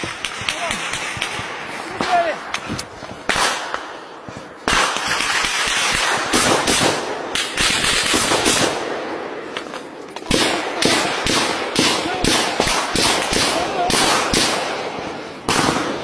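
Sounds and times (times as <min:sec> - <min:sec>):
automatic rifle fire: 0:04.7 - 0:08.9, 0:10.3 - 0:14.9, 0:15.5 - 0:16.0.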